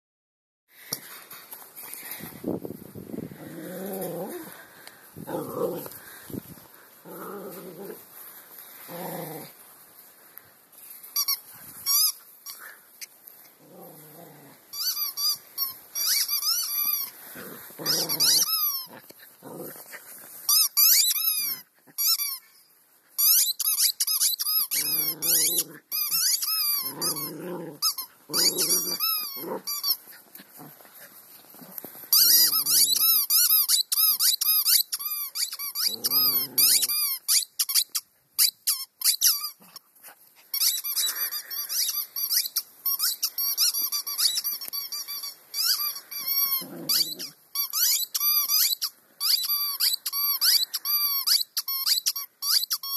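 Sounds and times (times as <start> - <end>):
dog growling: 3.3 - 8.1, 8.8 - 9.6, 13.6 - 14.6, 17.2 - 19.9, 24.8 - 25.8, 26.8 - 29.7, 35.9 - 36.9, 46.4 - 47.4
squeaky toy squeaking: 11.2 - 12.6, 14.7 - 17.1, 17.8 - 19.0, 20.5 - 22.5, 23.2 - 30.0, 32.1 - 39.6, 40.5 - 52.9.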